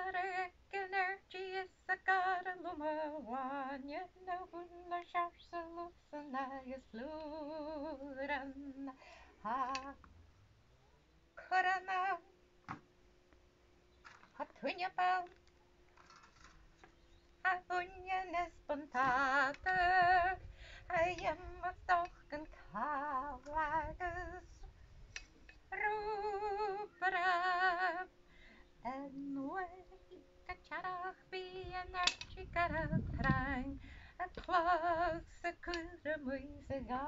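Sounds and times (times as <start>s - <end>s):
woman singing unaccompanied: 0.0s - 10.1s, 11.4s - 12.4s, 14.3s - 15.5s, 17.1s - 37.0s.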